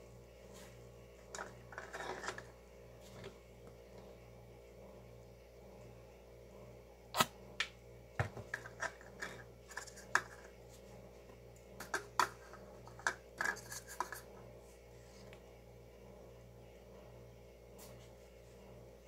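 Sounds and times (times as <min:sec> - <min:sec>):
light scraping: 0:01.4 - 0:03.3
plastic cups clicking and knocking: 0:08.2 - 0:10.5, 0:11.8 - 0:14.3.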